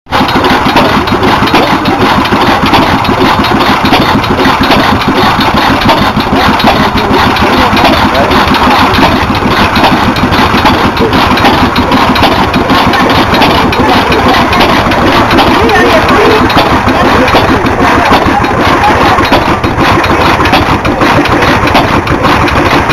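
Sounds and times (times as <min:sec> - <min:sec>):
stationary engine clattering: 0:00.1 - 0:22.9.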